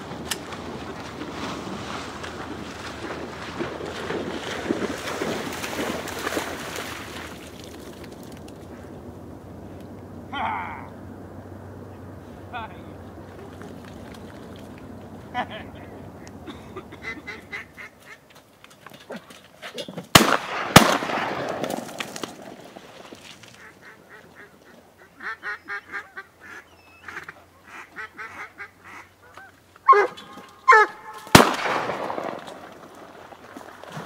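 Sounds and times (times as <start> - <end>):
honking calls: 8.6 - 18.3, 23.4 - 31.5
duck quacking calls: 15.3 - 18.2, 23.5 - 31.4
shotgun blasts echoing: 20.1 - 22.3, 31.2 - 32.8.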